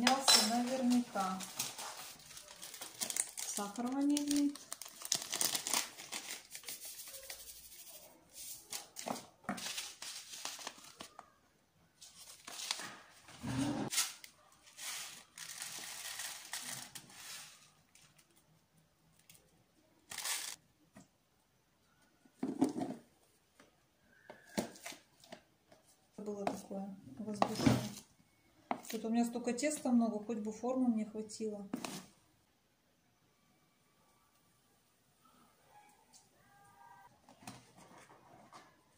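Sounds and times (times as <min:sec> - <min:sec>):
paper sachets tearing and rustling: 0:00.6 - 0:11.2, 0:12.0 - 0:13.1, 0:13.9 - 0:18.4, 0:20.1 - 0:20.6.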